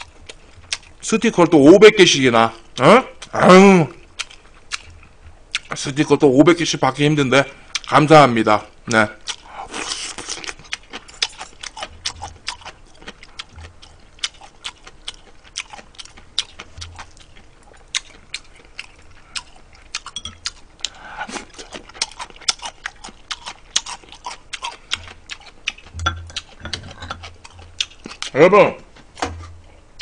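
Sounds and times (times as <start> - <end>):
chewing and mouth smacking: 0.0 - 1.5, 2.7 - 5.9, 9.2 - 28.4.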